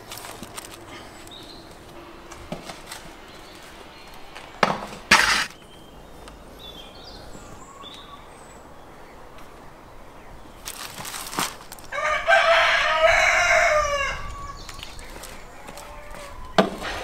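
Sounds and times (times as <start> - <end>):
pan scraping on brick: 4.6 - 5.6
metal pan clattering: 5.1 - 5.6.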